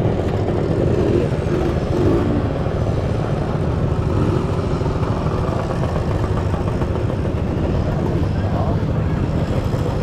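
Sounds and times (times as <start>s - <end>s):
scooter engines rumbling: 0.0s - 10.0s.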